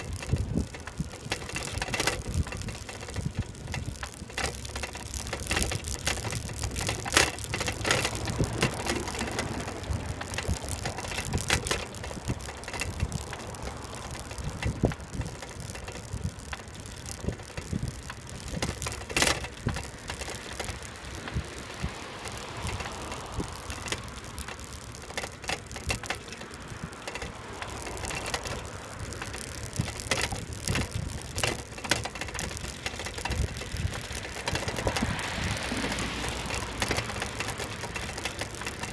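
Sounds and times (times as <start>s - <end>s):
bicycle rattling on paved path: 0.0s - 38.9s.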